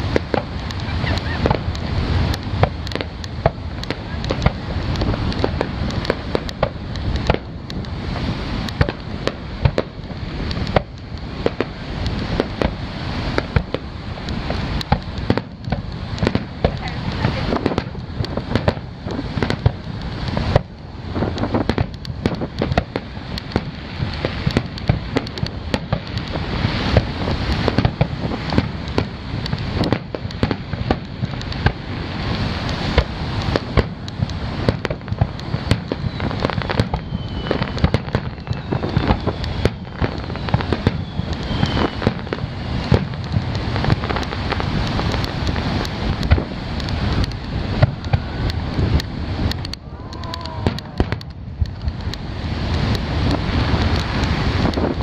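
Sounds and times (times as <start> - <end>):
firework shells bursting: 0.0 - 55.0.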